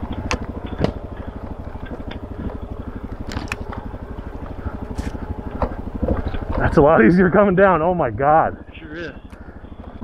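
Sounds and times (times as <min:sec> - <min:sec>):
bike knocking and rattling: 0:00.0 - 0:07.8
motorcycle engine at low revs: 0:00.0 - 0:10.0.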